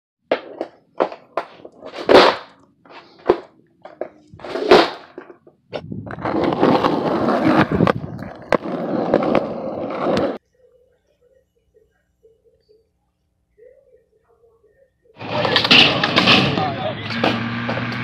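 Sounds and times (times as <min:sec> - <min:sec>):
skateboard wheels rolling: 0:00.3 - 0:10.4, 0:15.2 - 0:18.0.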